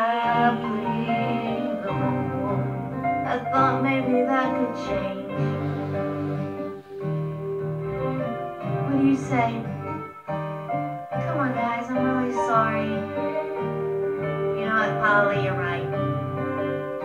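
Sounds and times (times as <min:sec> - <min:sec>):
person singing: 0:00.0 - 0:07.3, 0:07.9 - 0:13.8
piano accompaniment: 0:00.0 - 0:17.0.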